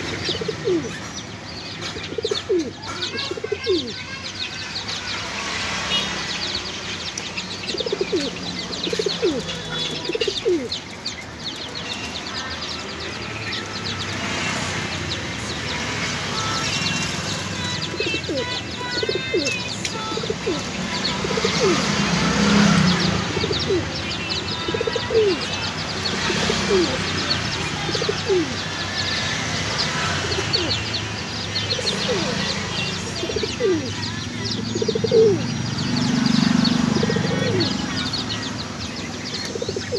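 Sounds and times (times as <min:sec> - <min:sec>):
pigeons cooing: 0:00.0 - 0:01.1, 0:01.8 - 0:04.0, 0:07.6 - 0:10.8, 0:17.6 - 0:24.0, 0:24.6 - 0:28.6, 0:30.1 - 0:30.8, 0:31.7 - 0:32.6, 0:33.2 - 0:34.0, 0:34.8 - 0:35.5, 0:36.2 - 0:38.2, 0:39.4 - 0:39.9
small birds chirping: 0:00.0 - 0:39.9.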